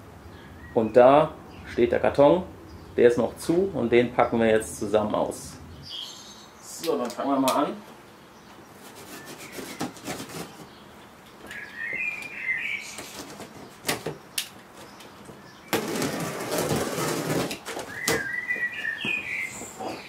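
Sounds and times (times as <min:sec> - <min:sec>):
bird chirping: 0:00.1 - 0:04.4, 0:05.5 - 0:16.7, 0:17.7 - 0:20.0
packing tape ripping off box: 0:08.9 - 0:10.7, 0:12.9 - 0:14.6, 0:15.7 - 0:18.3
packing tape clicks: 0:13.0 - 0:15.1.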